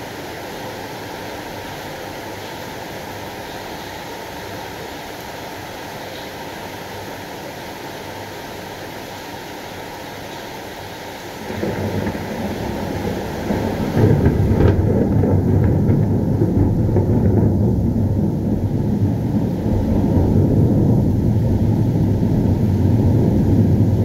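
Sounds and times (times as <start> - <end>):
steady rain: 0.0 - 24.0
thunder rumbling: 11.4 - 24.0.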